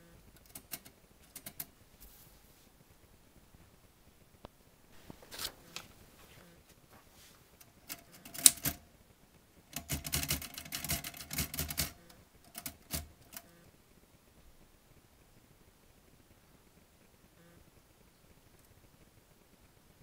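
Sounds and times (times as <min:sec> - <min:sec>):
manual typewriter clacking: 0:00.4 - 0:01.7, 0:07.6 - 0:08.8, 0:09.7 - 0:13.5.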